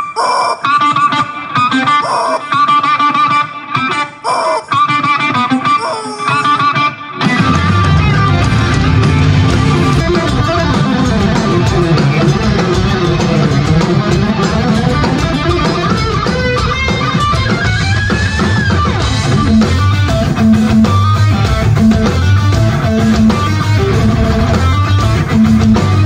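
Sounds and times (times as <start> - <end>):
electric guitar lead: 0.0 - 26.0
drum kit: 6.3 - 26.0
bass notes: 7.4 - 16.7, 17.6 - 26.0.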